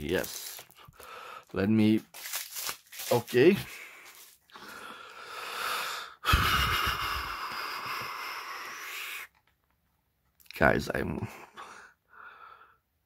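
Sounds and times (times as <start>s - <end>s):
long breaths close to microphone: 4.6s - 9.3s, 11.5s - 12.9s.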